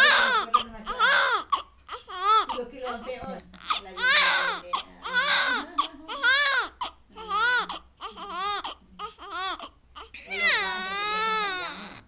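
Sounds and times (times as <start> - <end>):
newborn baby crying: 0.0 - 12.0.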